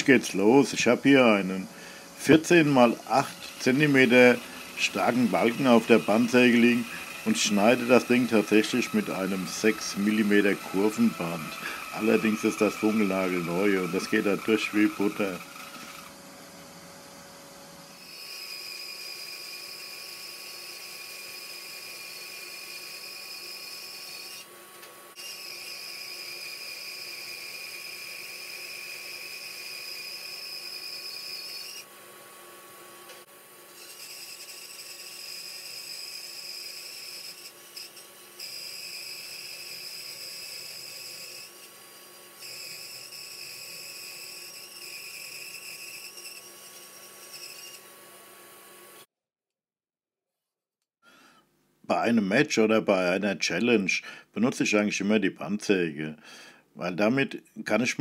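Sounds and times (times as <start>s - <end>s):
bandsaw low hum: 0.0s - 44.6s
bandsaw high whine: 0.0s - 49.1s.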